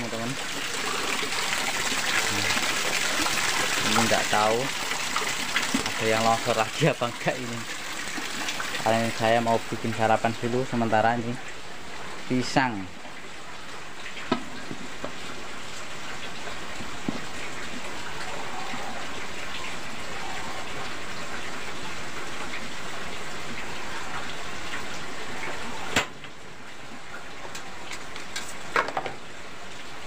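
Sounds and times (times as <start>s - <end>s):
heavy rain hissing: 0.1s - 5.1s.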